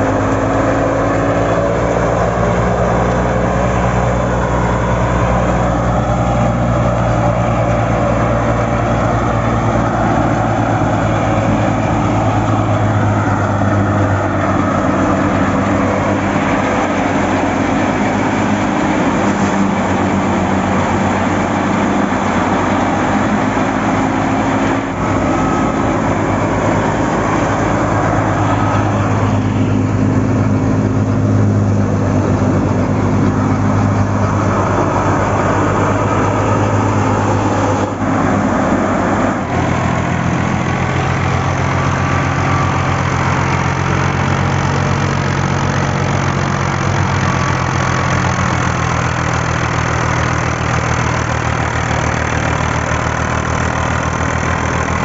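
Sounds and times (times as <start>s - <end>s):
thresher machinery running: 0.0s - 55.0s
tractor diesel engine running: 0.0s - 55.0s.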